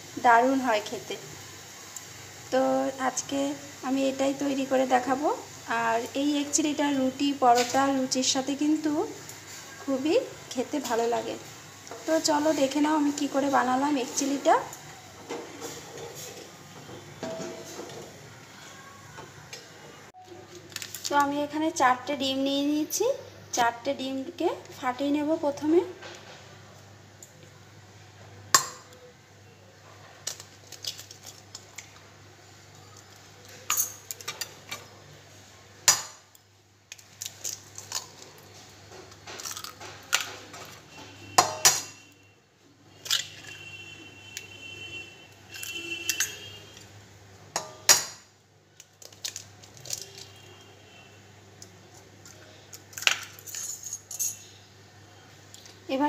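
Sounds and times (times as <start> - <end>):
eggs cracked on metal bowl: 28.5 - 29.0, 35.8 - 38.2, 47.6 - 50.3, 52.7 - 53.5.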